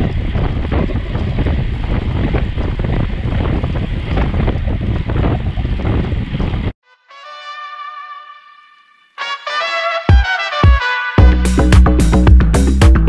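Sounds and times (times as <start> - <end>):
wind buffeting microphone: 0.0 - 6.8.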